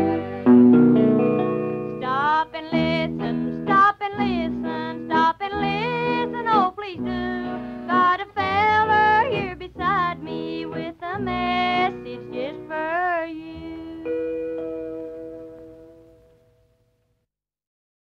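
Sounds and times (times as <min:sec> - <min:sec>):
women singing in harmony: 0:00.0 - 0:00.6, 0:02.0 - 0:13.8
acoustic guitar: 0:00.0 - 0:17.1.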